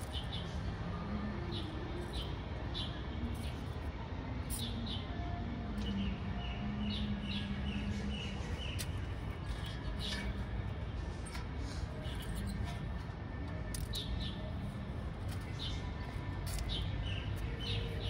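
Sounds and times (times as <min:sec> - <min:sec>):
low background hum: 0:00.0 - 0:18.0
small birds chirping: 0:01.5 - 0:03.7, 0:05.8 - 0:13.0, 0:13.7 - 0:18.0.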